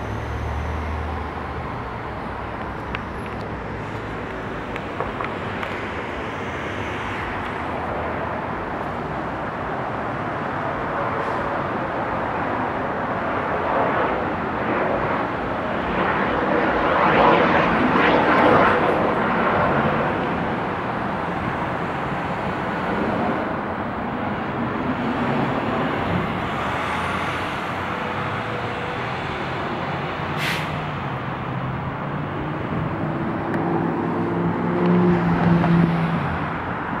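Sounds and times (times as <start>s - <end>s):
rush of passing cars: 0.0s - 37.0s
vehicle engine drone: 0.0s - 37.0s
short sharp hiss: 30.4s - 30.8s.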